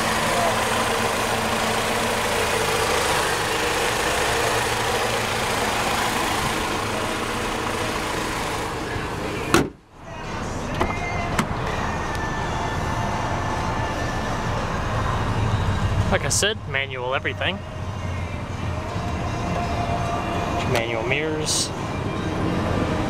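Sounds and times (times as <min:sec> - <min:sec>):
car engine idling: 0:00.0 - 0:23.0
car hood slamming shut: 0:09.5 - 0:09.8.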